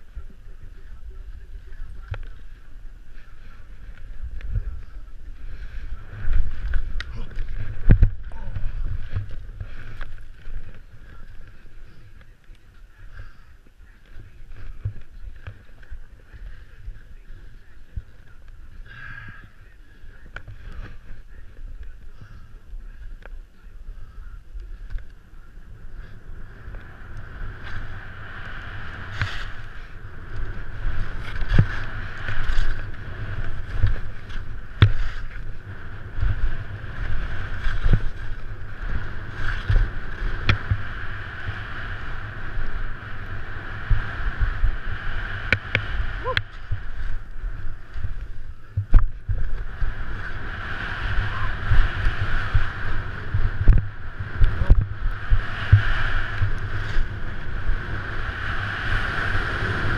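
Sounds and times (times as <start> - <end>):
skis scraping packed snow: 0.0 - 59.9
wind buffeting microphone: 0.0 - 59.9.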